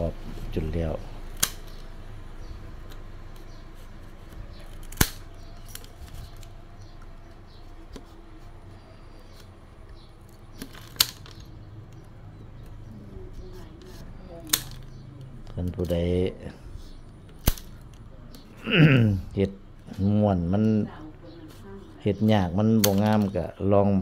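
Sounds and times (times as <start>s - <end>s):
bamboo snapping: 1.3s - 1.9s, 4.6s - 6.5s, 17.3s - 18.0s.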